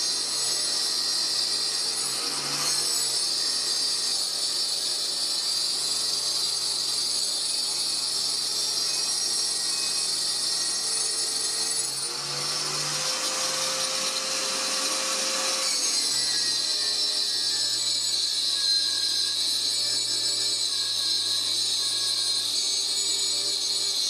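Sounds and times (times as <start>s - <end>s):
electric router whining: 0.0s - 24.0s
router cutting wood: 0.0s - 24.0s.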